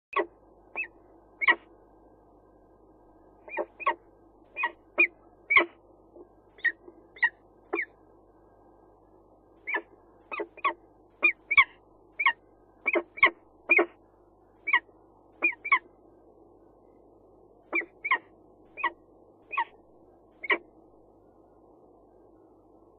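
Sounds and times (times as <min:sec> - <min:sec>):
falcon calling: 0:00.2 - 0:01.7, 0:03.4 - 0:05.8, 0:06.6 - 0:08.0, 0:09.6 - 0:14.0, 0:14.6 - 0:15.9, 0:17.7 - 0:19.8, 0:20.4 - 0:20.7.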